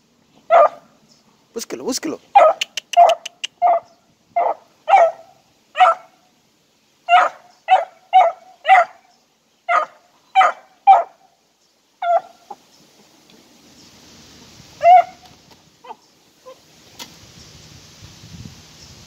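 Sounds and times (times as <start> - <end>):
puppy yelping barks: 0.5 - 0.9, 2.3 - 6.2, 7.1 - 9.0, 9.7 - 11.2, 12.0 - 12.6, 14.8 - 16.6.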